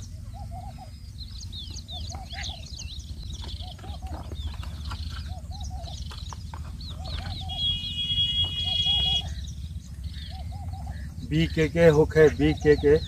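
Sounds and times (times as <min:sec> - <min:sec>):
birds calling: 0:00.0 - 0:13.0
steady low rumble: 0:00.0 - 0:13.0
high whistle: 0:07.5 - 0:09.3.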